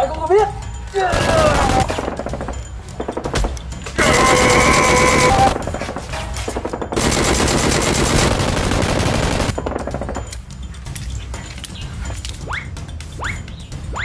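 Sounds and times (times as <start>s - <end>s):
rapid automatic gunfire: 1.1s - 2.6s, 4.0s - 5.7s, 6.6s - 10.2s.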